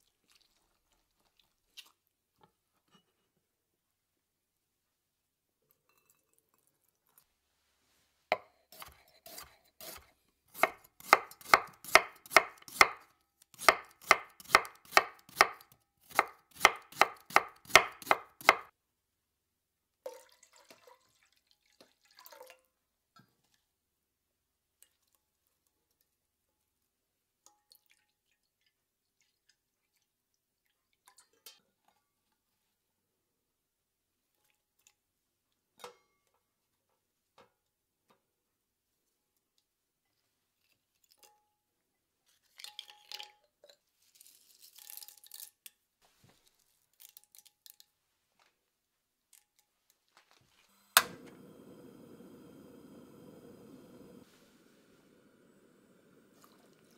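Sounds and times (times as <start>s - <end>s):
knife striking wooden cutting board: 8.4s - 13.0s, 13.6s - 18.7s.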